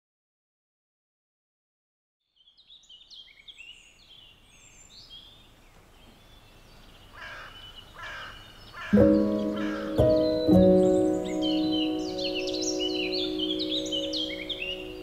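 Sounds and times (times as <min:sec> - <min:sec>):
songbirds chirping and trilling: 0:02.2 - 0:15.0
harsh bird cawing: 0:07.1 - 0:10.5.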